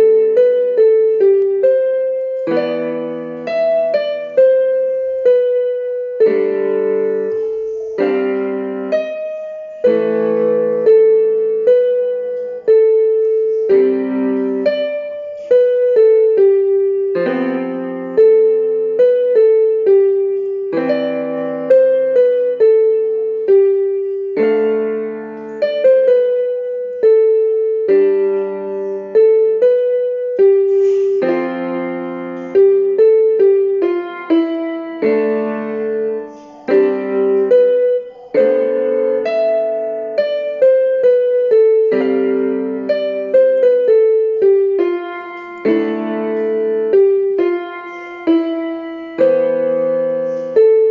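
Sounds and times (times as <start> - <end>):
solo piano music: 0.0 - 50.9.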